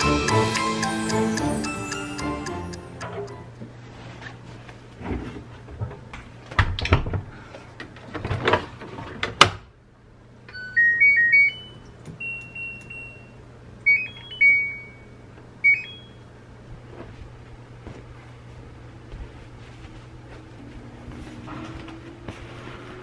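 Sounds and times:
washing machine electronic beeps: 0:10.5 - 0:16.2.

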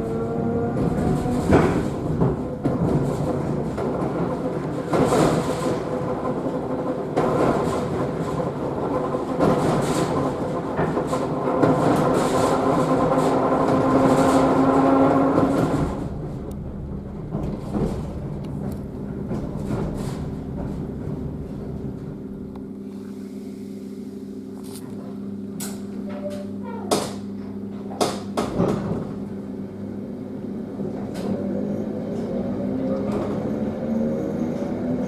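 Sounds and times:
train knocks: 0:00.0 - 0:22.3
wheels on rails: 0:00.0 - 0:22.6
train motor hum: 0:00.0 - 0:35.0.

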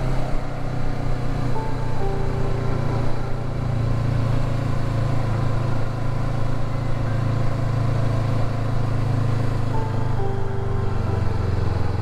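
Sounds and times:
motorcycle engine cruising: 0:00.0 - 0:12.0.

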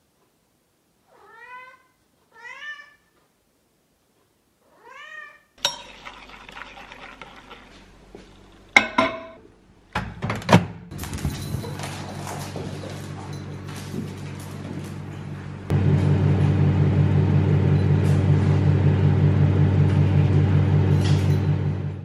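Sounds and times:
background noise: 0:00.0 - 0:11.0
cat meowing: 0:01.1 - 0:03.1, 0:04.7 - 0:05.6.

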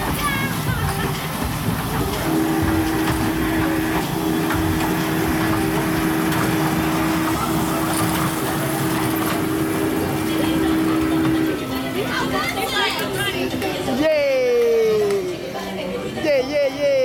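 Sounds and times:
toy train motor humming: 0:00.0 - 0:13.4.

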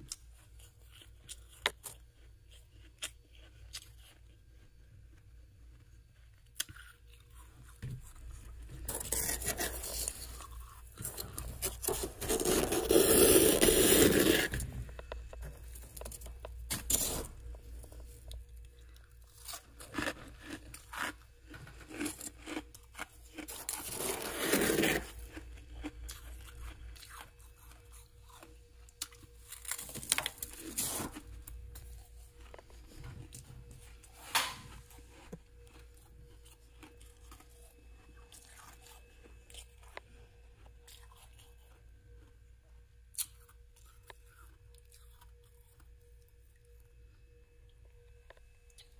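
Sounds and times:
frost scraping and crunching: 0:06.1 - 0:42.3.

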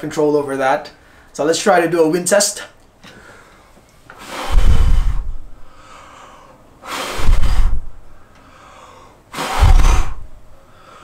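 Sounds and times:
wind buffeting a microphone: 0:04.5 - 0:05.5, 0:07.2 - 0:07.9.

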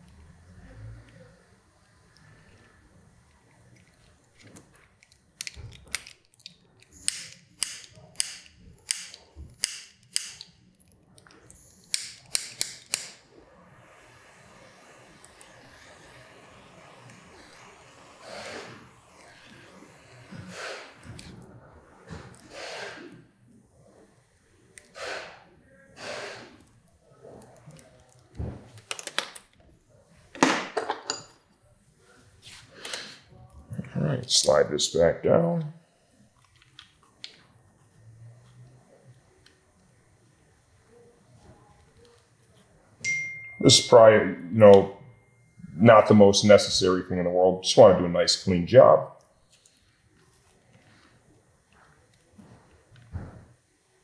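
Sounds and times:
sharp clicks and snaps: 0:03.7 - 0:13.2, 0:27.4 - 0:29.6
man breathing out through nose: 0:19.6 - 0:21.1, 0:22.4 - 0:23.2, 0:26.0 - 0:26.6.

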